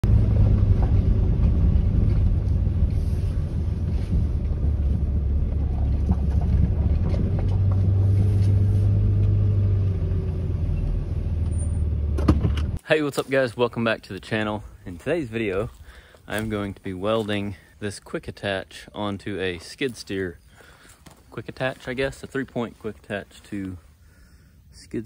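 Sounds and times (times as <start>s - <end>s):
truck engine and road rumble: 0.0s - 25.0s.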